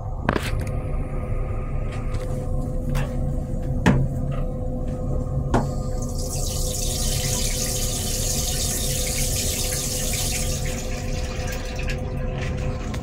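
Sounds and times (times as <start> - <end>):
low hum and rumble: 0.0 - 13.0
toilet flushing: 5.6 - 13.0.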